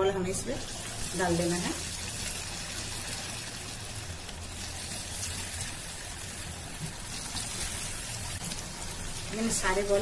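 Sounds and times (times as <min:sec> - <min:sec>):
oil sizzling and bubbling: 0:00.0 - 0:10.0.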